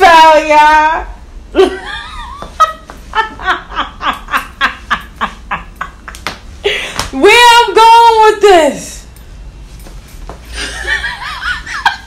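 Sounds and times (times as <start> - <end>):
woman laughing hard: 1.6 - 6.9, 10.5 - 12.0.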